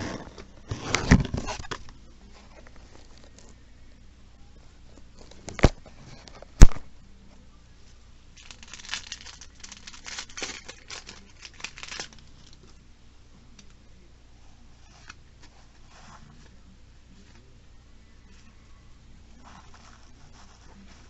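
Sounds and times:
foil wrapper tearing and crinkling: 8.4s - 12.7s.

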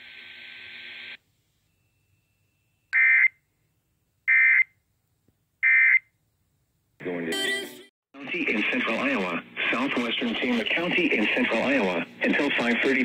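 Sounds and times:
radio hiss: 8.2s - 13.0s.

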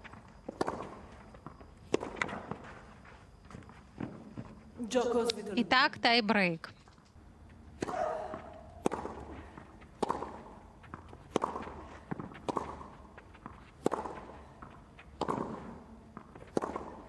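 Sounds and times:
tennis racket hitting ball: 0.5s - 1.0s, 1.9s - 2.6s, 7.8s - 17.0s.

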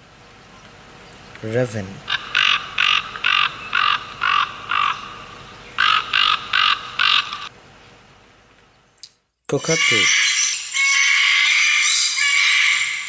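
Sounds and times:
raven croaking: 2.0s - 7.5s.

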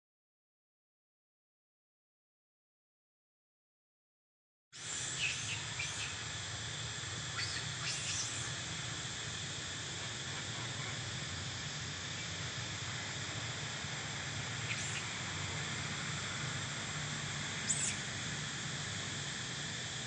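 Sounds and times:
insects droning: 4.8s - 20.0s.

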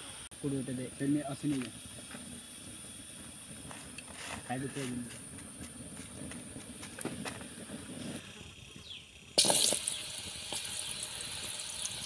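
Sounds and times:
oil sizzling: 9.3s - 12.0s.

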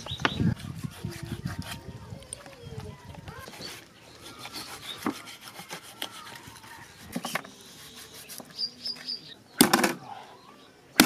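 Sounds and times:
knife sawing through meat: 0.6s - 1.8s, 3.5s - 8.4s.

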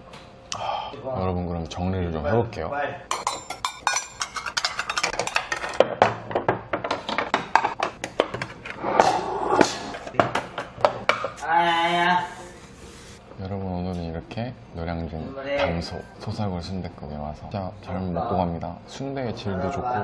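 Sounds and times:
dishes clinking and clattering: 3.1s - 8.8s.

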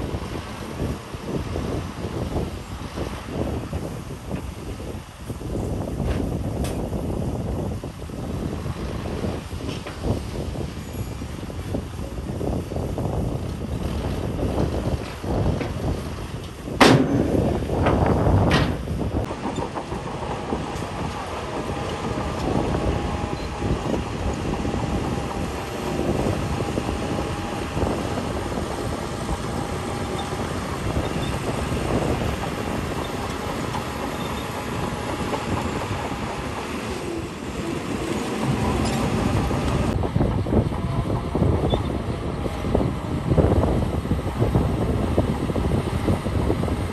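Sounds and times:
diesel engine running under load: 0.0s - 46.9s
metallic clatter of tracks: 14.1s - 25.9s, 26.7s - 41.0s.

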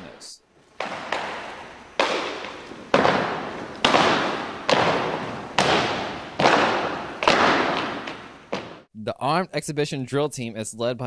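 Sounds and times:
drill team strikes echoing: 0.6s - 8.9s.

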